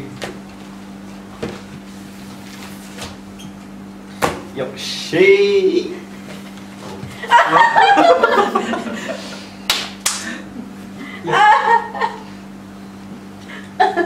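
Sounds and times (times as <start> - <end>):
sharp slaps: 4.2 - 4.5, 9.7 - 10.3
group laughter: 7.1 - 9.5, 10.2 - 12.4, 13.4 - 14.0.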